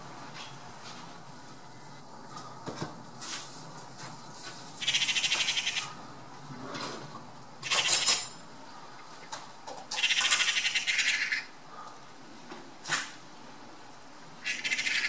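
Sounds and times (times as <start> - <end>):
magpies chattering: 4.8 - 6.0, 9.9 - 11.5, 14.4 - 15.0.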